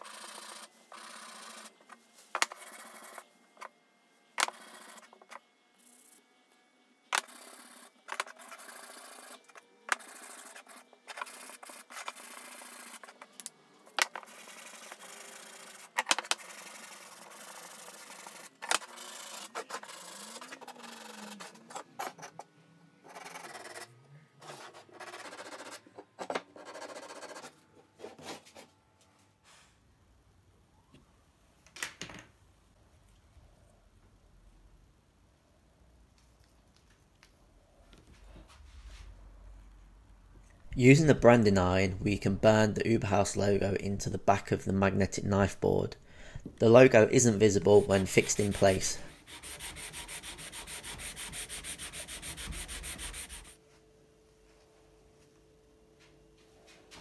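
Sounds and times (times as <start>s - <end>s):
sanding sponge rubbing wood: 47.6s - 53.6s.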